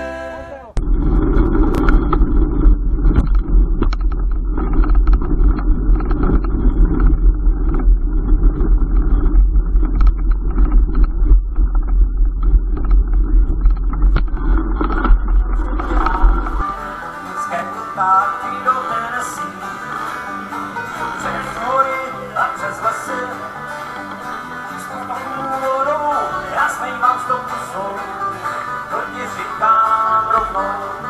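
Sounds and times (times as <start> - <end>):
clicks and knocks: 0.8 - 16.6
wind buffeting microphone: 0.8 - 16.8
music: 15.7 - 31.0.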